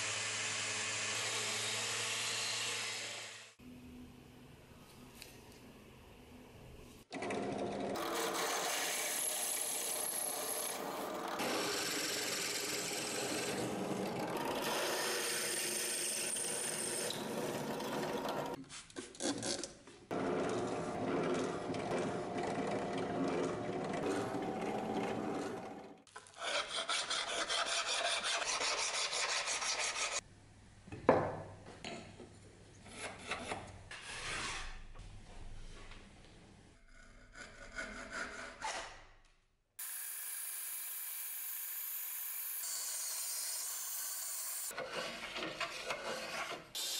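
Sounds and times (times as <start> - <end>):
band saw running: 7.2 - 18.6
hand file on steel: 26.4 - 30.2, 37.0 - 38.8.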